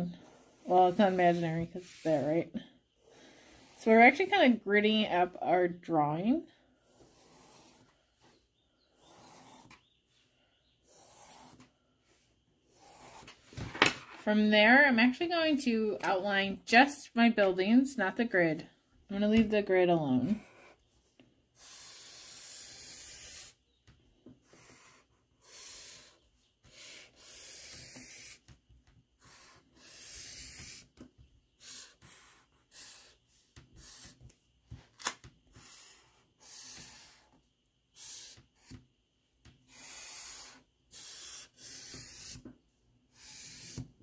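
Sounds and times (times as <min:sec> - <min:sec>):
marker scratching on paper: 0:00.0 - 0:04.3, 0:06.8 - 0:08.0, 0:08.9 - 0:09.9, 0:10.8 - 0:11.7, 0:12.7 - 0:13.4, 0:21.6 - 0:23.6, 0:24.4 - 0:28.6, 0:29.2 - 0:31.0, 0:31.6 - 0:34.4, 0:35.5 - 0:38.8, 0:39.6 - 0:42.5, 0:43.1 - 0:44.0.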